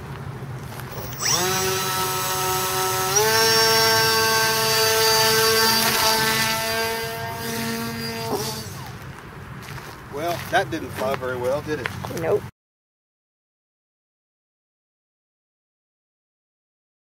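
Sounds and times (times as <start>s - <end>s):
electric motor and propeller whine: 0.0s - 10.2s.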